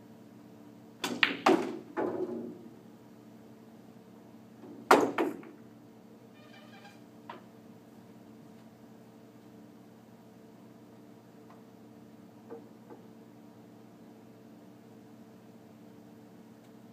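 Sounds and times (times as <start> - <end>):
pool balls clacking: 1.0 - 2.6, 4.8 - 5.6
balls rolling and knocking: 4.7 - 5.6.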